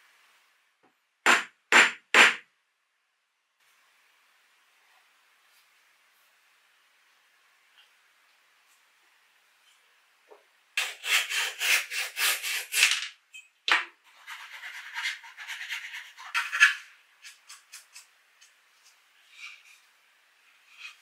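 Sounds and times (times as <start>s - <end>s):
hand saw cutting wood: 10.8s - 13.0s, 14.1s - 16.8s.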